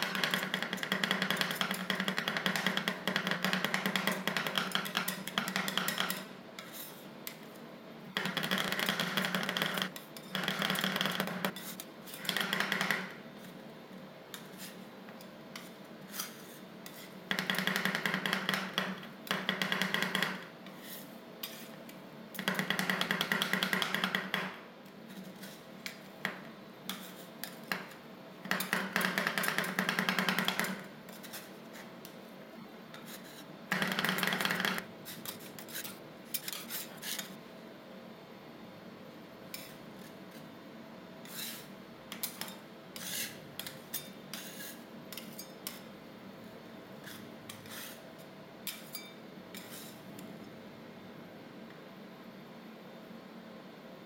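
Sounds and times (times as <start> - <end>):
metal spatulas rapid tapping: 0.0 - 7.4, 8.2 - 13.1, 15.6 - 20.4, 22.4 - 24.6, 26.9 - 31.4, 33.7 - 37.3, 41.3 - 45.9
spatulas scraping metal plate: 4.8 - 7.4, 15.5 - 17.2, 26.9 - 27.9, 28.5 - 31.9, 32.9 - 37.4, 41.2 - 45.9, 47.0 - 48.0, 48.7 - 50.0.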